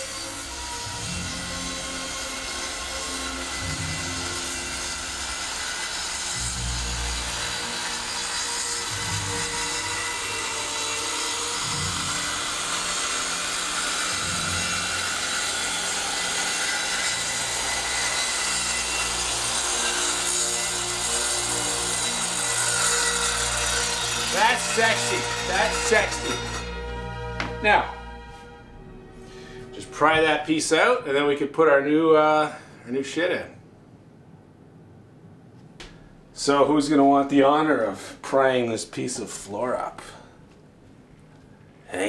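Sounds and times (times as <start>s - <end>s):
circular saw cutting wood: 0.0s - 28.3s.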